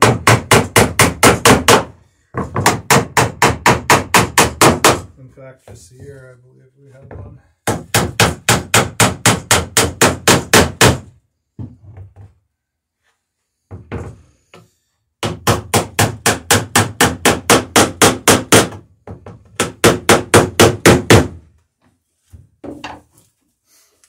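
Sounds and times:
hammer riveting wood: 0.0 - 5.1, 7.6 - 12.1, 15.2 - 21.5.

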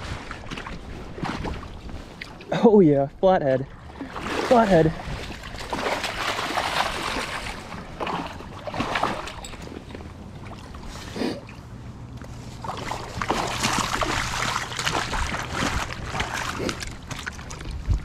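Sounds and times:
fish splashing water: 3.8 - 11.8, 12.4 - 18.0.

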